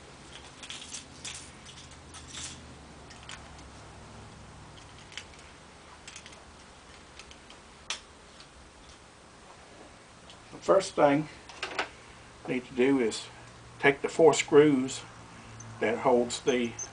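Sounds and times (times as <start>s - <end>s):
small tools clicking and rustling: 0.2s - 3.7s, 4.7s - 9.0s, 15.5s - 16.9s.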